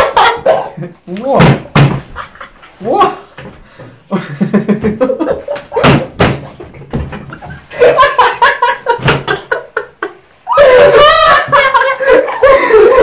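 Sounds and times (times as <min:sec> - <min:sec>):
men laughing hard: 0:00.0 - 0:01.1, 0:01.8 - 0:13.0
sharp knocks: 0:01.4 - 0:02.2, 0:04.8 - 0:07.5.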